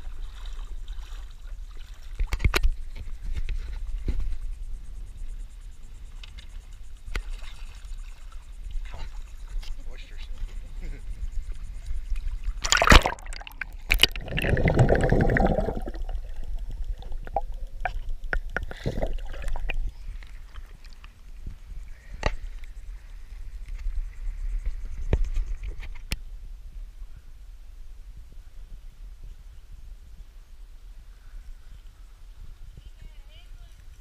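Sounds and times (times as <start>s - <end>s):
water sloshing around wading person: 0.0s - 4.4s, 6.1s - 24.4s.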